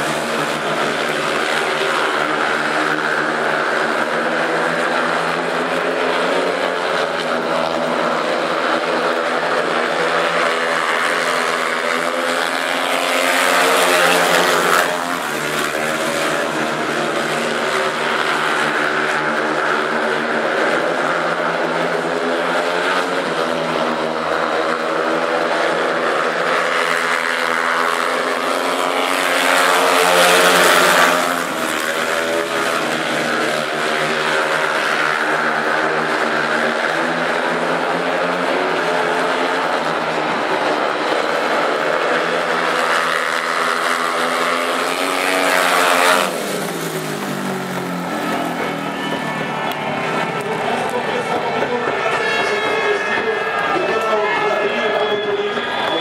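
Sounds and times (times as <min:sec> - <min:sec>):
motorcycle engines racing: 0:00.0 - 0:56.0.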